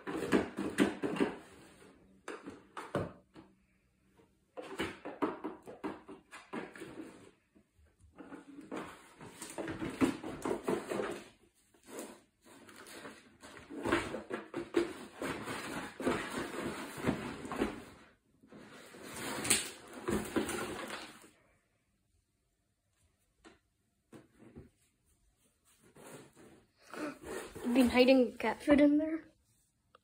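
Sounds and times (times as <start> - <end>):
cardboard box scraping on wooden floor: 25.6 - 28.4.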